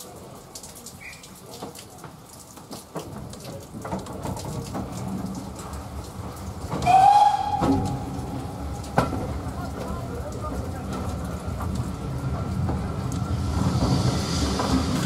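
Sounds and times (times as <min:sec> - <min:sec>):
rain pattering: 0:00.0 - 0:15.0
steam locomotive whistle: 0:06.8 - 0:08.8.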